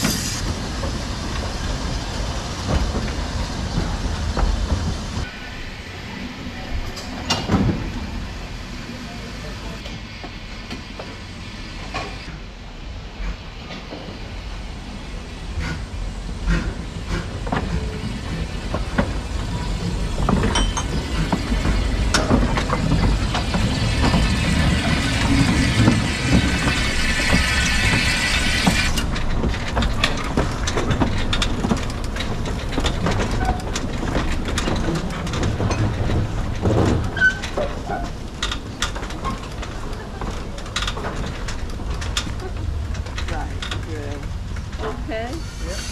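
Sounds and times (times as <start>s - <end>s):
wheels clicking on rail joints: 0.0s - 5.3s, 15.5s - 45.9s
whistling steam hiss: 0.0s - 29.1s, 45.2s - 45.9s
steam locomotive rumbling: 0.0s - 45.9s.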